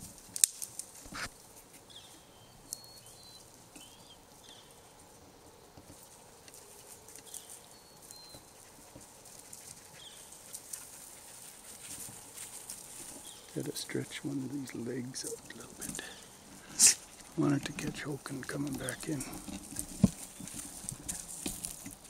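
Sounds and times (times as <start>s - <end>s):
small birds chirping: 1.7s - 22.0s.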